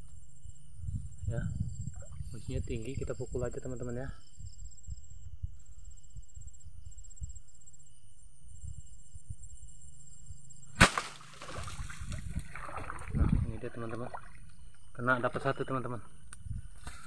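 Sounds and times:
insects trilling: 0.0s - 17.0s
pole whacking branches: 10.8s - 13.0s.

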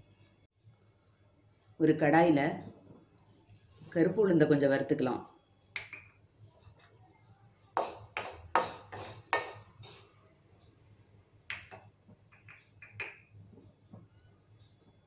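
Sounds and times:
lentils rattling in a pan: 3.5s - 4.2s.

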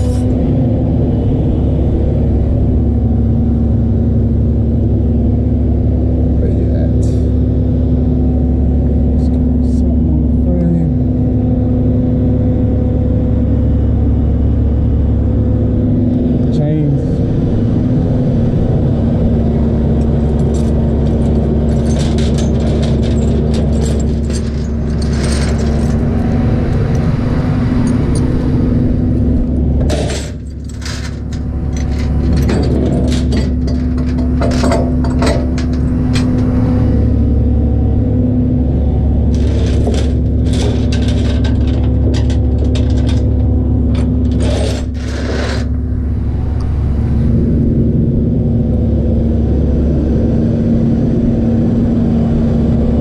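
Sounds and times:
truck engine droning: 0.0s - 53.0s
metallic clicks and rattles: 20.0s - 26.3s, 29.8s - 36.5s, 39.3s - 45.7s.

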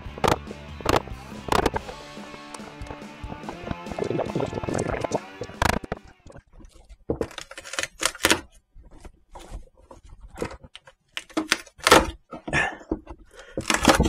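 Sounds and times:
screwdriver knocking and scraping wood: 0.1s - 2.0s, 5.5s - 14.0s.

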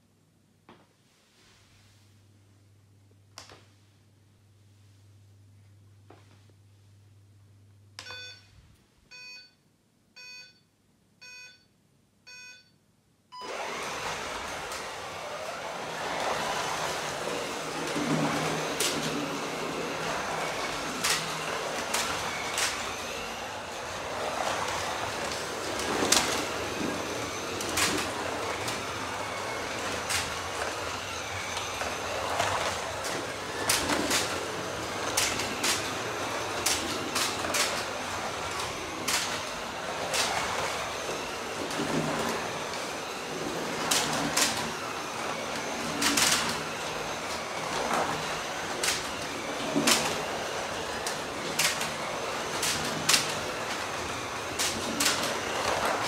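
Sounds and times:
slot cars rolling hum: 15.1s - 40.9s.

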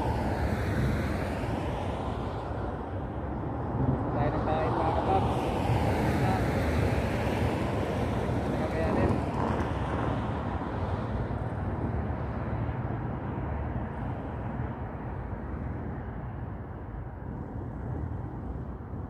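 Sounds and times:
wind on microphone: 0.0s - 19.0s.

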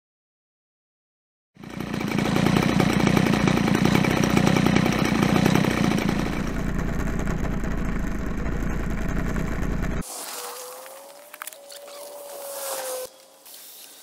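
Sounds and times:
two-stroke engine buzzing: 1.6s - 10.0s.

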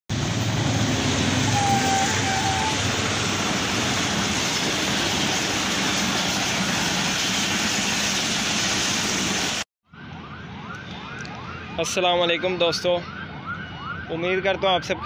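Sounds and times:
passenger train passing: 0.1s - 9.6s.

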